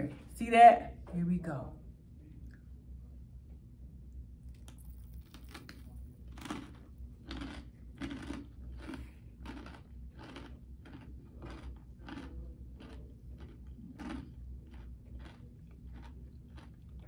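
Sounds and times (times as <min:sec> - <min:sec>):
crunchy chewing: 0:04.4 - 0:17.0.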